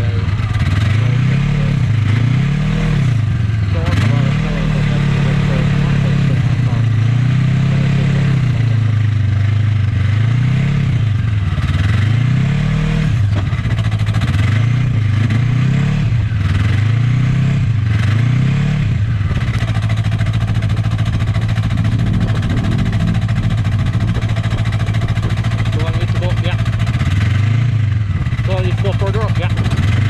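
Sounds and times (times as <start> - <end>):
snowmobile engines idling: 0.0 - 10.0, 19.0 - 27.4, 28.0 - 30.0
engine revving: 0.0 - 30.0.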